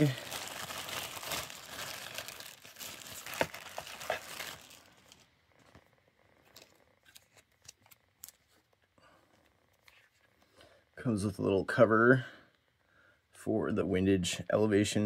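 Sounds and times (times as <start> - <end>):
plastic bag crinkling: 0.0 - 5.7.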